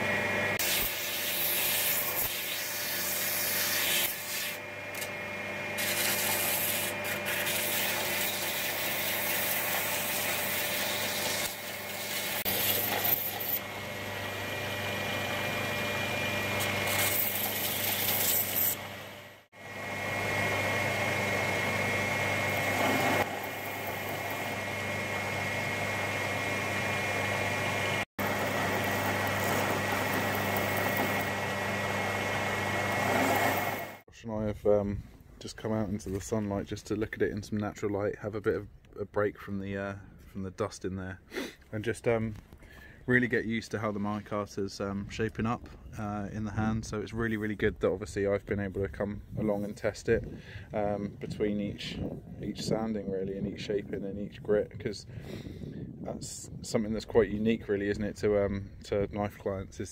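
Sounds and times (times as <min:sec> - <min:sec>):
belt sander motor hum: 0:00.0 - 0:34.0
handle grinding on sanding belt: 0:00.6 - 0:05.2, 0:05.8 - 0:13.7, 0:14.8 - 0:19.0, 0:22.1 - 0:24.7, 0:28.2 - 0:34.0.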